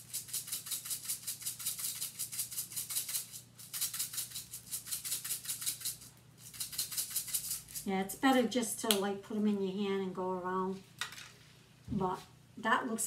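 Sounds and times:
sprinkles rattling in container: 0.0 - 7.9.

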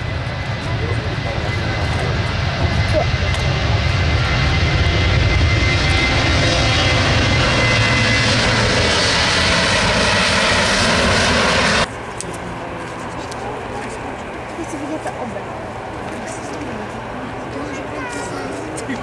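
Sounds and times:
jet engine roar with whine: 0.0 - 19.0.

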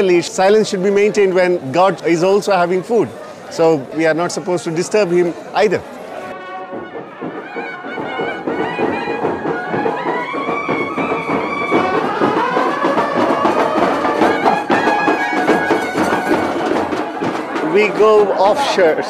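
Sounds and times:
reed wind instrument melody: 0.0 - 19.0
rapid drumming: 6.3 - 19.0.

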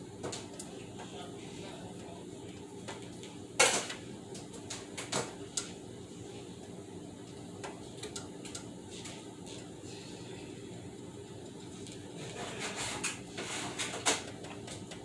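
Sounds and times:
steady low hum: 0.0 - 15.0
clatter at kitchen sink: 12.2 - 15.0.

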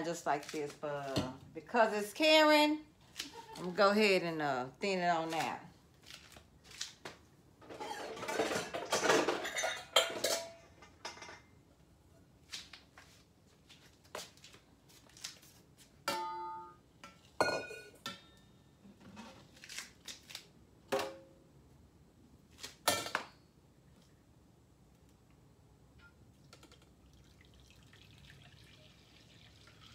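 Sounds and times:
metal bowls and utensils clanking: 7.6 - 11.6.

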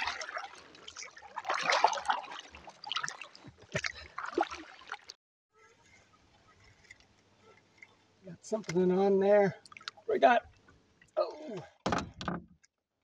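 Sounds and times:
paddle splashing in water: 0.0 - 5.2.

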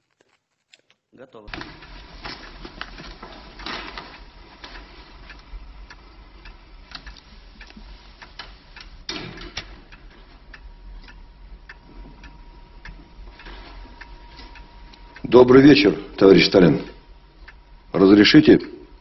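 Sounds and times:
steady hiss: 1.4 - 19.0
uneven ticking clicks: 1.5 - 15.3, 16.8 - 17.9.

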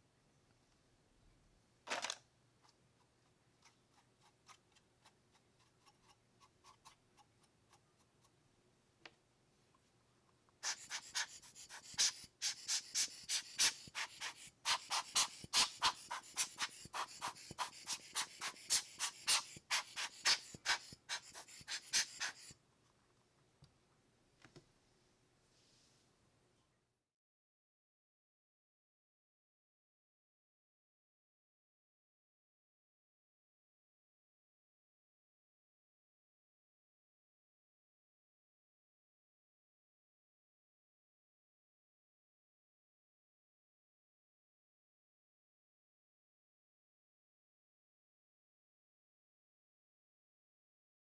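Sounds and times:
click: 24.4 - 24.7.

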